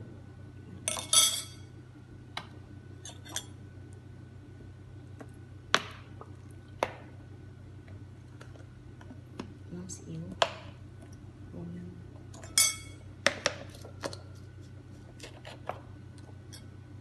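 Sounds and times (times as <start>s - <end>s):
steady low hum: 0.0s - 17.0s
spoon clinking on ceramic bowl: 12.4s - 13.0s.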